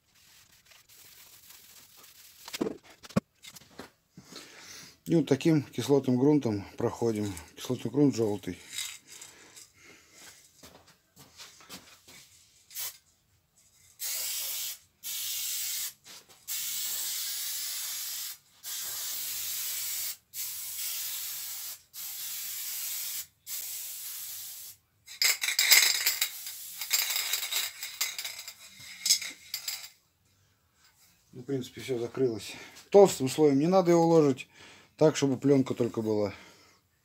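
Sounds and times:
spray can mixing ball rattling: 0:00.0 - 0:03.2, 0:08.7 - 0:09.3, 0:16.5 - 0:29.9
aerosol spray hissing: 0:14.0 - 0:24.8.

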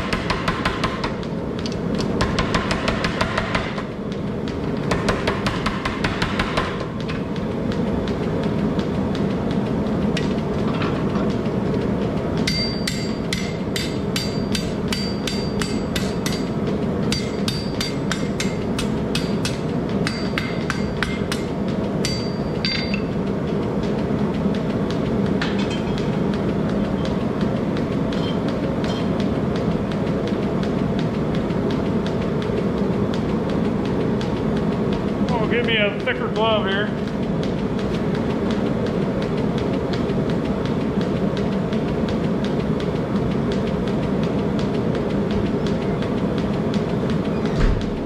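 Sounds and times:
forge burner roar: 0:00.0 - 0:48.0.

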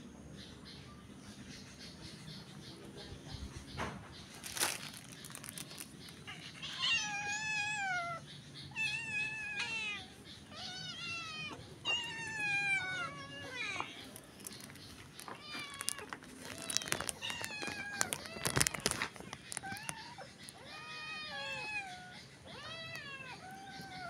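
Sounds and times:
cat meowing: 0:06.6 - 0:14.1, 0:15.3 - 0:19.0.

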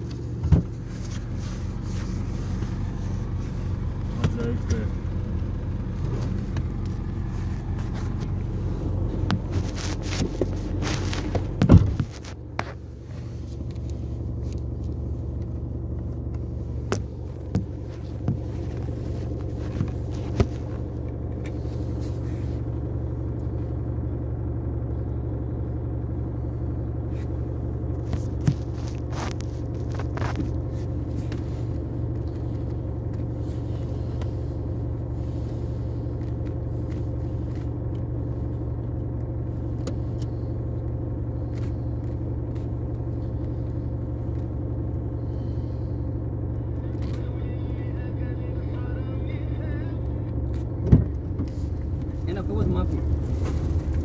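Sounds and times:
car engine idling: 0:00.0 - 0:54.0
thump: 0:00.4 - 0:00.8, 0:11.6 - 0:12.1.

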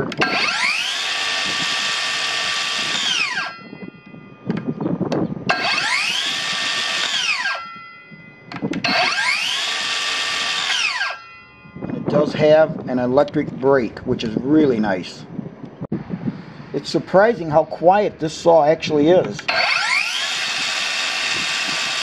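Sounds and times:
circular saw motor whining: 0:00.1 - 0:04.8, 0:05.5 - 0:12.0, 0:19.4 - 0:22.0.

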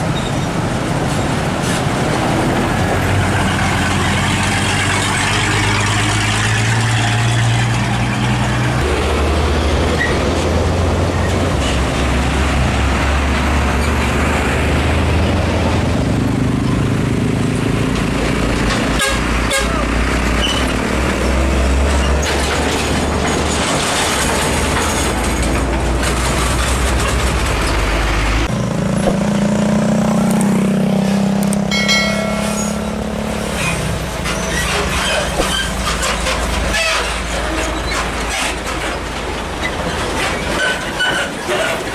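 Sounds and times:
truck diesel engines passing: 0:00.0 - 0:41.9
truck horn: 0:18.9 - 0:20.0.

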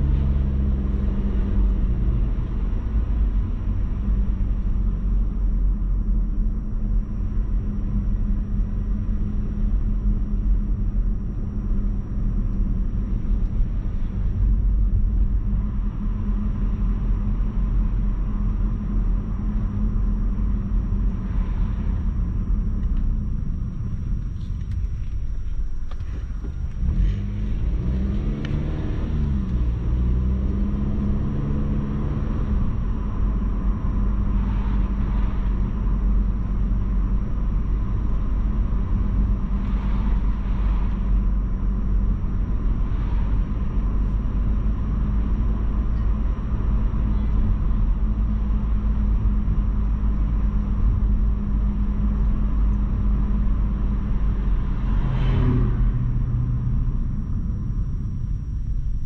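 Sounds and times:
car engine rumble: 0:00.0 - 0:59.0
road noise: 0:00.0 - 0:59.0.

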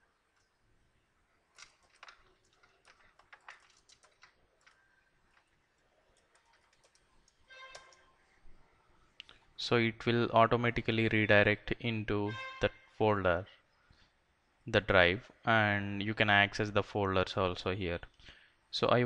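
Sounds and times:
keyboard typing: 0:01.5 - 0:08.1.

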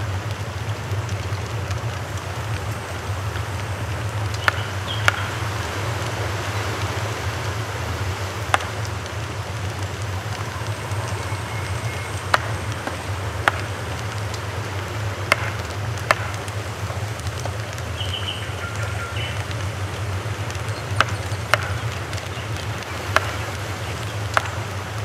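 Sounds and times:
background hiss: 0:00.0 - 0:25.0
cleaver chopping on wooden board: 0:15.3 - 0:15.5.

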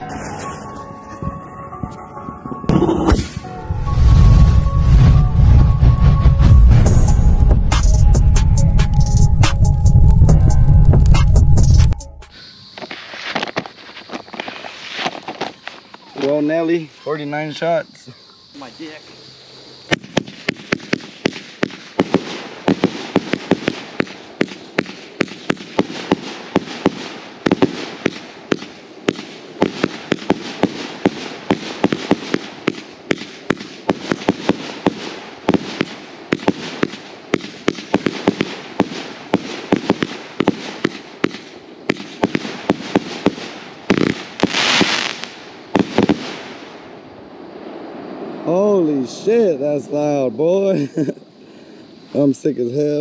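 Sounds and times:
fireworks launches and bangs: 0:02.4 - 0:08.1, 0:11.0 - 0:16.8, 0:19.9 - 0:47.0.

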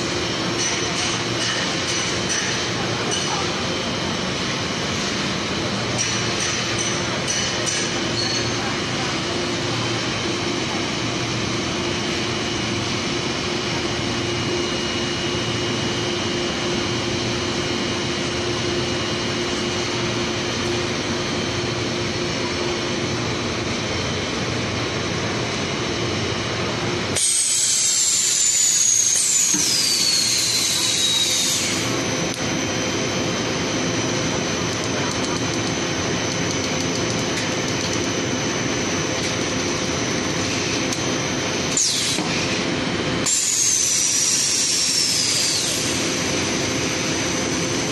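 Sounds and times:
machinery hum: 0:00.0 - 0:47.9
loud high-pitched falling whistles: 0:27.6 - 0:31.8.

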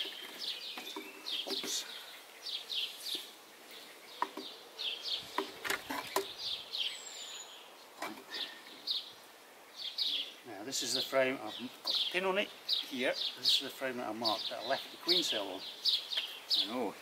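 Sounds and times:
wooden frames clicking and knocking: 0:00.0 - 0:01.9, 0:04.1 - 0:04.6, 0:05.3 - 0:06.4
small birds chirping: 0:00.0 - 0:17.0.

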